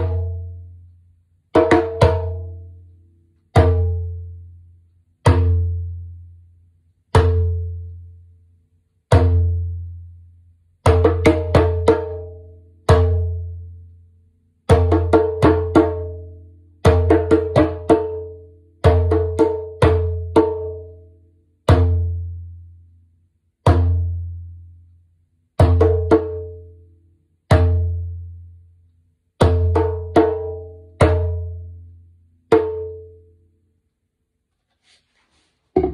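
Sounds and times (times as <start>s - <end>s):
djembe played with hands: 0.0s - 0.7s, 1.5s - 2.8s, 3.5s - 4.4s, 5.2s - 6.1s, 7.1s - 7.9s, 9.1s - 9.9s, 10.8s - 13.6s, 14.7s - 21.1s, 21.7s - 22.4s, 23.6s - 24.4s, 25.6s - 26.7s, 27.5s - 28.1s, 29.4s - 31.7s, 32.5s - 33.2s.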